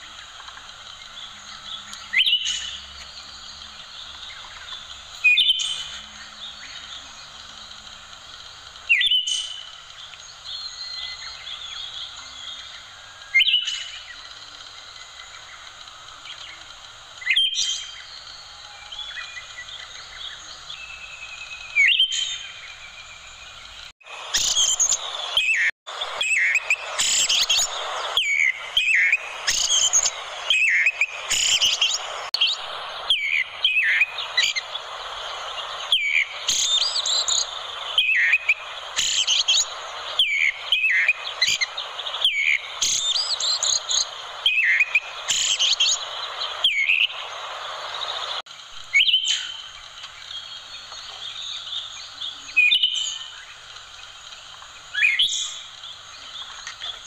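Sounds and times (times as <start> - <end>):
steady hiss: 0.0 - 57.0
thrush chirping: 19.1 - 48.4.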